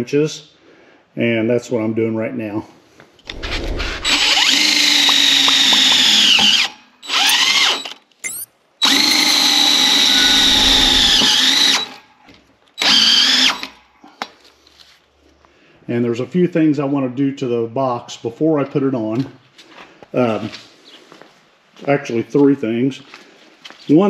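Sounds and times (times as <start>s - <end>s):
cordless drill driving screws: 3.3s - 12.0s, 12.8s - 13.8s.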